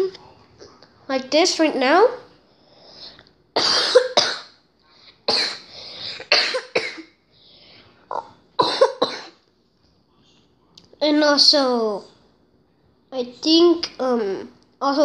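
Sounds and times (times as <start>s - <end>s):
person coughing: 3.6s - 4.5s, 5.3s - 7.1s, 8.1s - 9.4s.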